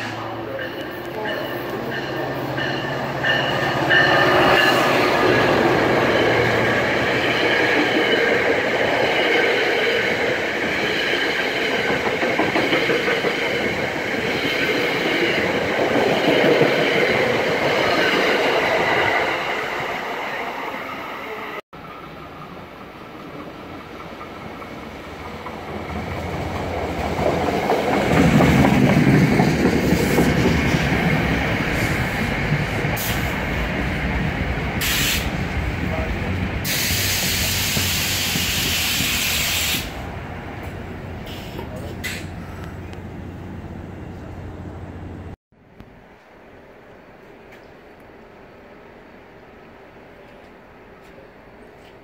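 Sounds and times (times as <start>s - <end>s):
train approaching: 0.0s - 52.0s
train wheels clattering: 0.2s - 18.7s, 22.1s - 33.7s.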